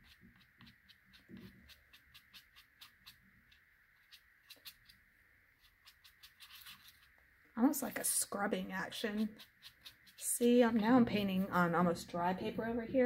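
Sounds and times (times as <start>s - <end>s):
brush scratching on paper: 0.0s - 7.2s, 8.9s - 10.8s.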